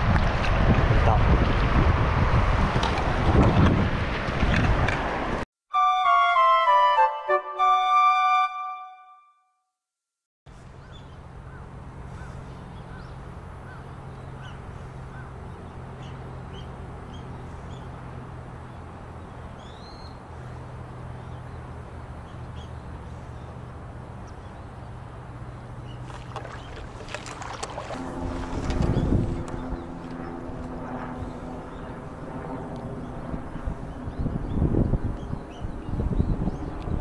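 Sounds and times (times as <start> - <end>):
wind: 0.0 - 8.5, 10.5 - 37.0
river water: 10.6 - 30.3
low hum: 26.4 - 33.8.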